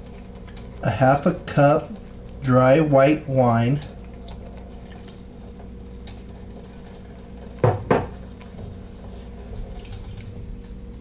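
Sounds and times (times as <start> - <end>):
steady low hum: 0.0 - 11.0
hard kitchen clunks: 7.6 - 8.2.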